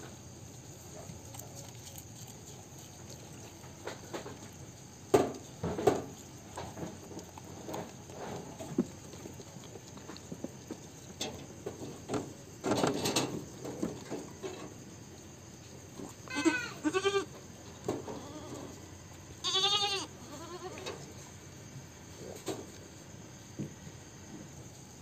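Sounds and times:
goats bleating: 0:16.2 - 0:17.3, 0:19.4 - 0:20.9.

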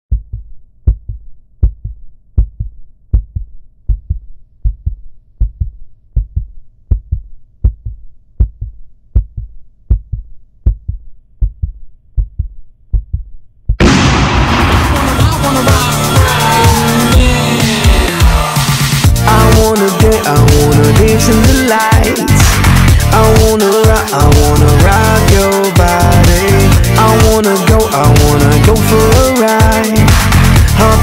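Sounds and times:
heartbeat thumps: 0:00.1 - 0:13.8
electronic dance music: 0:14.6 - 0:31.0.

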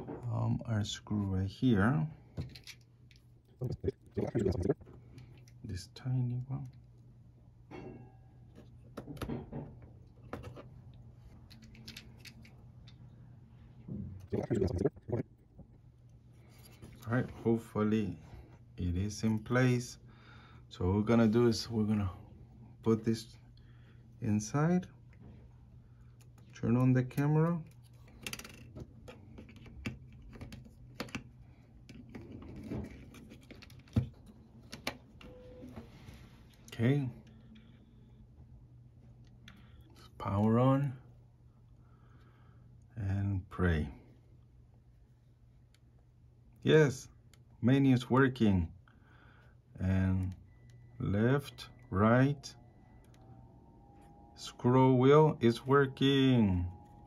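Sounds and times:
faint low hum: 0:00.0 - 0:57.0.

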